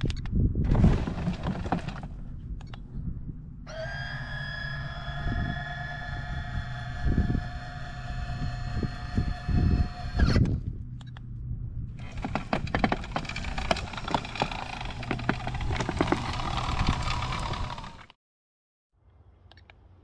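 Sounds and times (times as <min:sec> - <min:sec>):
low hum: 0:00.0 - 0:18.1
electric motors whining: 0:03.6 - 0:11.2, 0:12.0 - 0:18.1
rubber tracks clattering: 0:12.0 - 0:18.0
rapid clicks and knocks: 0:12.0 - 0:18.1.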